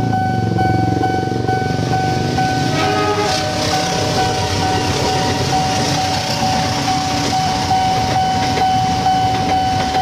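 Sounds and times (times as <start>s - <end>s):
crossing warning signal ringing: 0.0s - 10.0s
train rumbling past: 0.0s - 10.0s.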